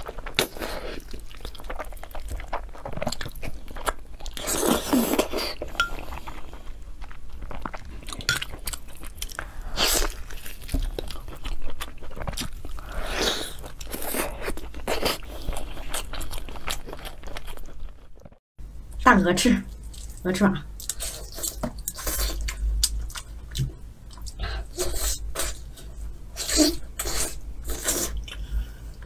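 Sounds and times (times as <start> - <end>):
wet chewing and smacking: 0.0 - 18.4, 19.7 - 20.2, 20.8 - 24.4.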